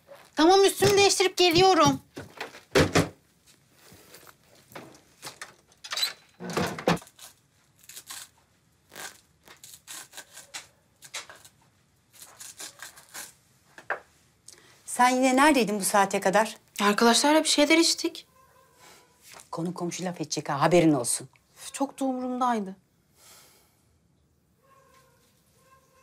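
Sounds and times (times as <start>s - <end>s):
kitchen handling clicks and rustles: 4.7s - 7.0s.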